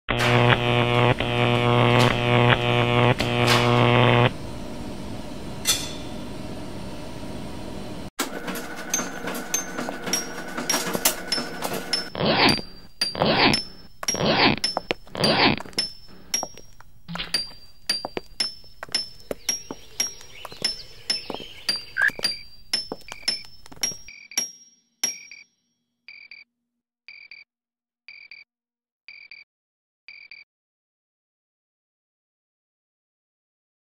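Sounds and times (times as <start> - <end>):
low droning tone: 0.2 - 7.9
high metallic pings: 9.0 - 25.5.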